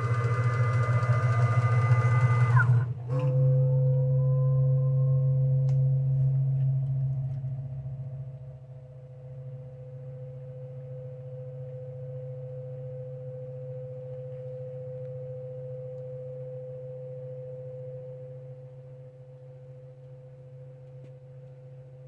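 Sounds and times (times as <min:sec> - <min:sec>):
machine drive whining: 0:00.0 - 0:04.7
low machine hum: 0:00.0 - 0:22.0.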